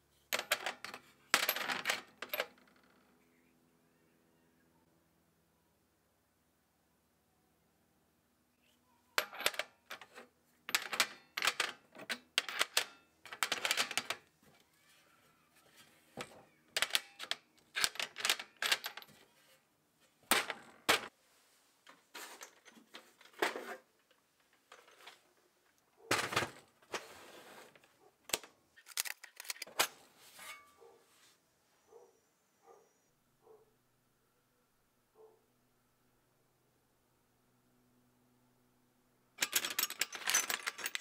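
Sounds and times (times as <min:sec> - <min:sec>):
steel sockets clinking: 0:09.2 - 0:14.1, 0:39.4 - 0:41.0.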